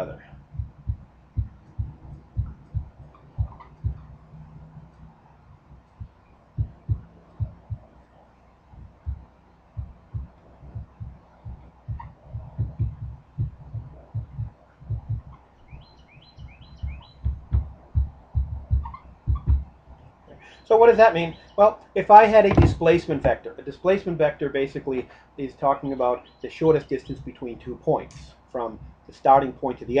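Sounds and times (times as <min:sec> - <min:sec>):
marker knocking on whiteboard: 0:22.5 - 0:22.8.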